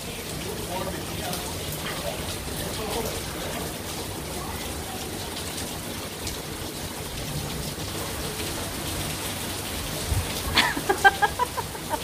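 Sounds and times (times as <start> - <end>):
steady rain falling: 0.0 - 12.0.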